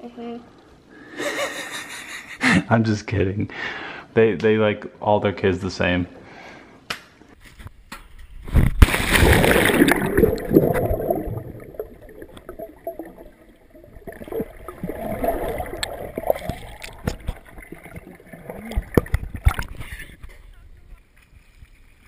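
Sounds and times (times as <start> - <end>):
camera splashing into water: 8.6 - 12.6, 14.0 - 20.0
muffled underwater bubbling: 9.2 - 20.3.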